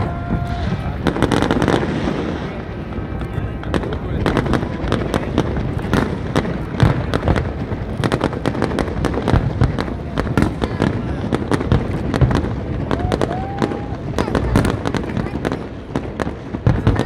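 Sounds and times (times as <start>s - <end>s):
rising firework whistle: 0.0s - 2.4s, 12.8s - 14.8s
fireworks bangs and crackles: 0.0s - 17.0s.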